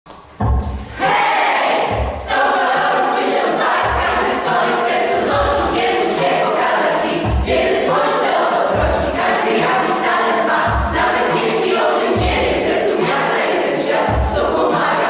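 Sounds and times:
backing track with low beat: 0:00.0 - 0:01.0, 0:01.8 - 0:15.0
children singing a pop song: 0:00.4 - 0:15.0.

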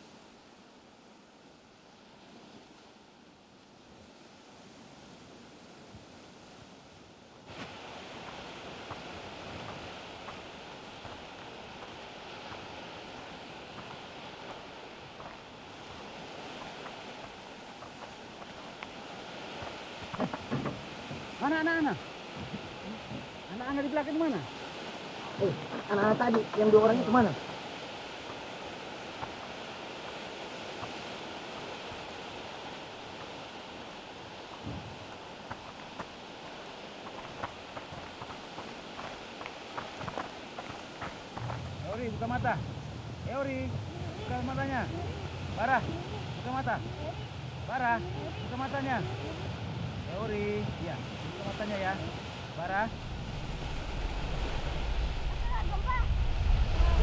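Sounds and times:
wind hissing: 0:26.8 - 0:57.0
even rushing noise: 0:40.1 - 0:57.0.

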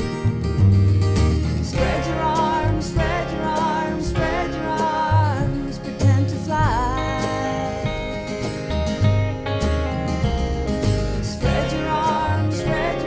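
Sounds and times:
live band playing slow song: 0:00.0 - 0:13.0
woman singing: 0:01.6 - 0:08.1, 0:11.2 - 0:13.0.

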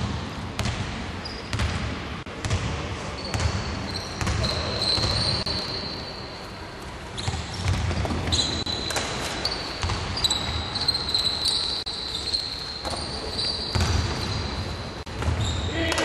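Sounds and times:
basketball bouncing on wooden floor: 0:00.6 - 0:00.9, 0:07.3 - 0:09.1, 0:13.7 - 0:14.3
sneakers squeaking on floor: 0:00.6 - 0:16.0
players' voices: 0:15.4 - 0:16.0.

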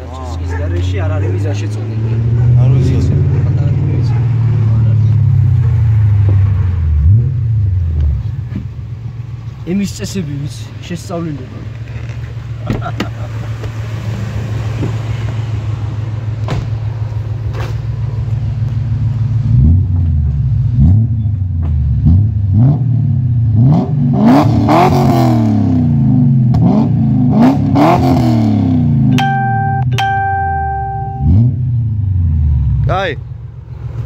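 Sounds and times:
engine revving: 0:00.0 - 0:08.6, 0:19.3 - 0:29.2, 0:31.0 - 0:33.0
car engine idling: 0:00.0 - 0:21.8.

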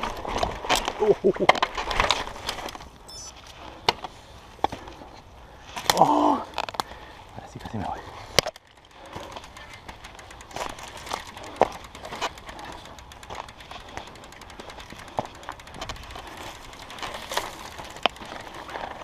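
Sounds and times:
bike clicks and rattles: 0:00.0 - 0:19.0
bike tyres on gravel: 0:00.0 - 0:19.0
bike knocking over bumps: 0:08.3 - 0:19.0.

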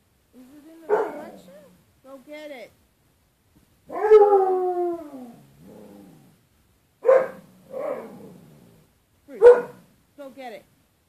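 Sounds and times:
dog yowling: 0:00.9 - 0:01.8, 0:03.9 - 0:05.4, 0:07.0 - 0:08.4
dog howling: 0:03.9 - 0:06.0.

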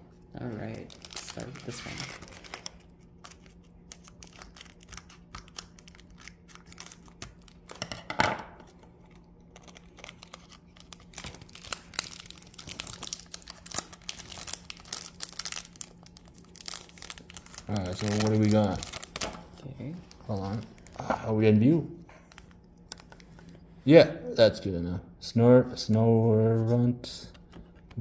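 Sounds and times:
foil pack tearing and crinkling: 0:00.7 - 0:07.9, 0:09.1 - 0:19.5.

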